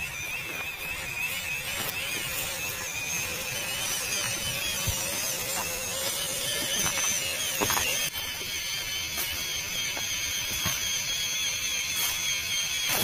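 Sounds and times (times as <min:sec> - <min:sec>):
electric motor whining: 0:00.0 - 0:13.0.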